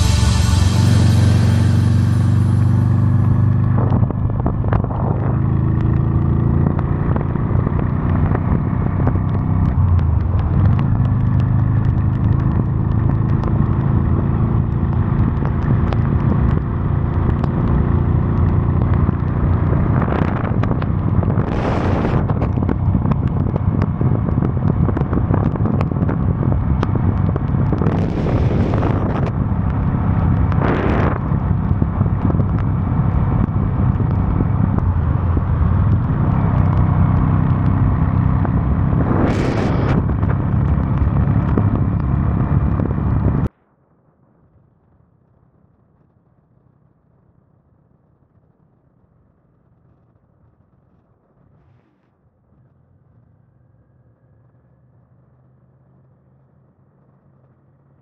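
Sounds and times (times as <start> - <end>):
swells of hiss: 0.0 - 2.8
motorcycle engine running: 0.0 - 43.5
road and wind noise: 0.0 - 58.0.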